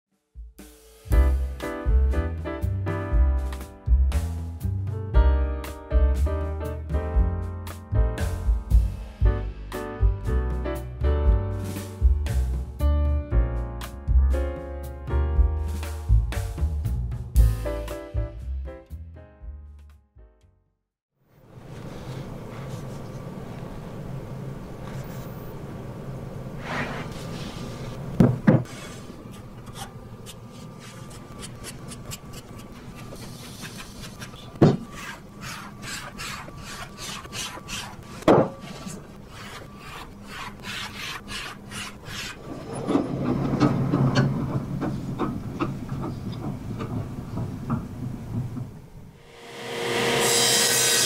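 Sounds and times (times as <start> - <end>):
paper and plywood sliding and rubbing: 21.6 - 23.3, 26.6 - 43.5.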